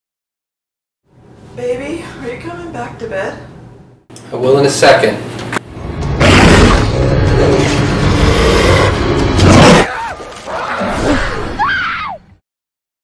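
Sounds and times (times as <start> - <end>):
dramatic film soundtrack: 5.7 - 11.6.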